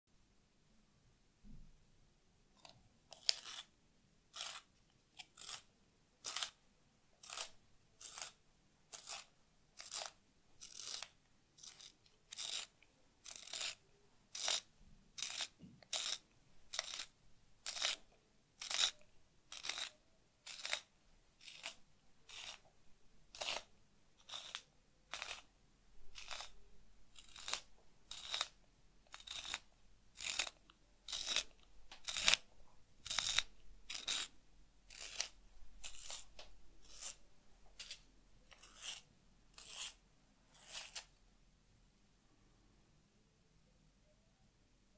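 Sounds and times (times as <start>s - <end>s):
pencil sharpener shaving wood: 3.1s - 3.7s, 4.3s - 6.6s, 7.2s - 22.7s, 23.3s - 25.5s, 26.1s - 26.6s, 27.2s - 32.4s, 33.0s - 34.3s, 34.9s - 37.2s, 37.8s - 41.1s.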